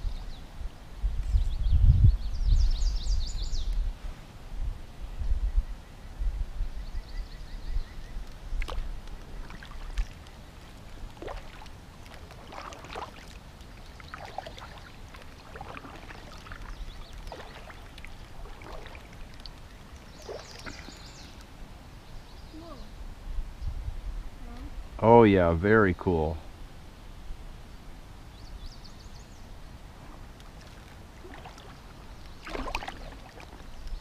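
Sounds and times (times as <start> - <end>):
wind buffeting microphone: 0.0 - 12.7
paddle splashing in water: 8.5 - 21.4, 30.1 - 34.0.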